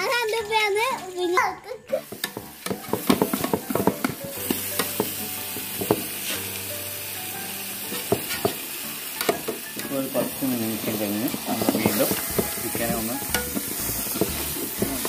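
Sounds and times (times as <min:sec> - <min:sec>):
chicken sizzling in oil: 0:01.9 - 0:15.0
metal skimmer scraping pot: 0:11.3 - 0:15.0.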